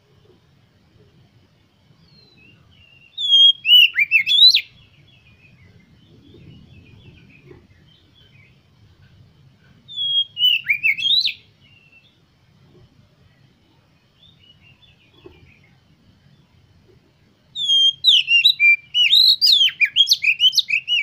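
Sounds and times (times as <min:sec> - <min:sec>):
bird singing whistled phrases: 0:02.1 - 0:04.9, 0:09.9 - 0:12.1, 0:17.6 - 0:21.0.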